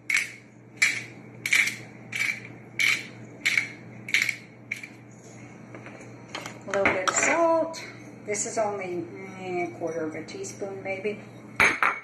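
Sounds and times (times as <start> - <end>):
pepper mill grinding: 0.0 - 5.0.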